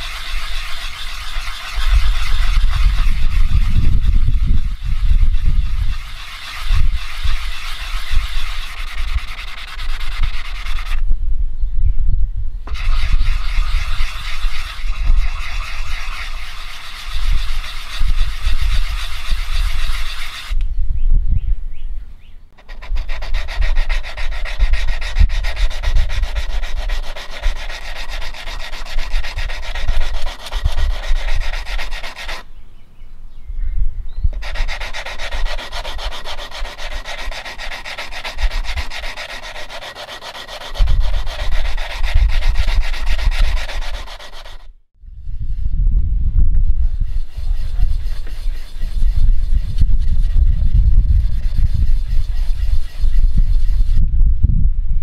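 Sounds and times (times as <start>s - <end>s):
metal rasping on sandpaper: 0.0s - 11.0s, 12.7s - 20.6s, 22.6s - 32.5s, 34.3s - 44.7s, 46.8s - 54.0s
low rumble: 45.0s - 48.0s, 53.4s - 55.0s.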